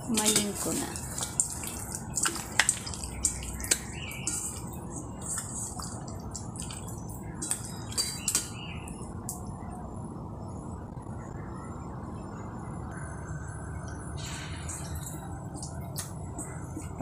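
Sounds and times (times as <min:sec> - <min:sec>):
wet squishing of chicken in bowl: 0:00.0 - 0:09.4.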